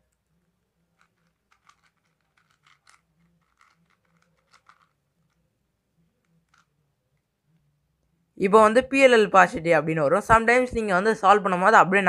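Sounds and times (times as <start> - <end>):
puzzle cube layers clicking: 1.0 - 5.4.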